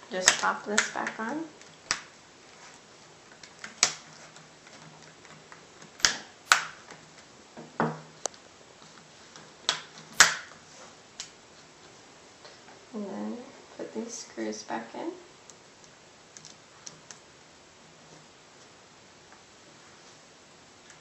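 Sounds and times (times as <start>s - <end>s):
plastic clips snapping into place: 6.0s - 7.0s.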